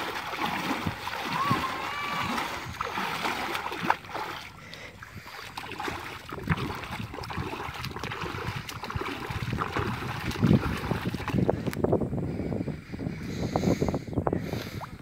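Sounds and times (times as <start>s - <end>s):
hands splashing in shallow water: 0.0s - 4.6s, 5.2s - 11.4s.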